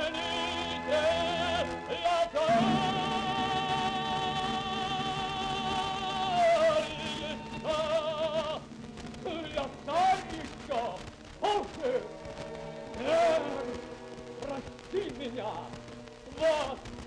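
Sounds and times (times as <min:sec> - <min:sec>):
operatic singing voice: 0:00.0 - 0:12.1, 0:12.9 - 0:13.8.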